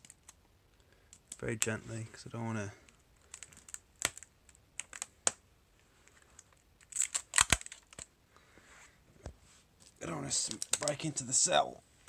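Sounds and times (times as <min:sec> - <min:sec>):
tape peeling crackle: 0:03.2 - 0:05.4, 0:06.1 - 0:08.1.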